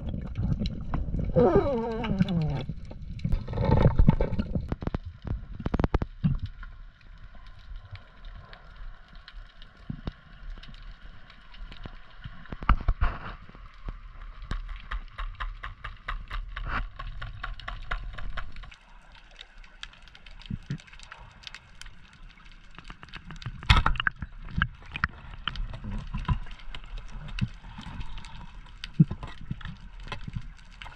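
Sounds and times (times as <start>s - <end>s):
gear knocking underwater: 0.0s - 6.5s
low underwater rumble: 0.0s - 9.2s
small underwater clicks and crackles: 0.0s - 30.9s.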